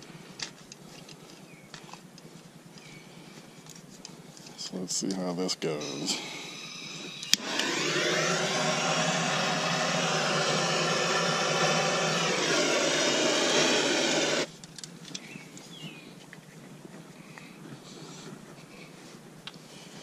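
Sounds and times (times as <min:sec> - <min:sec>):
propane torch roaring: 0:05.8 - 0:14.5.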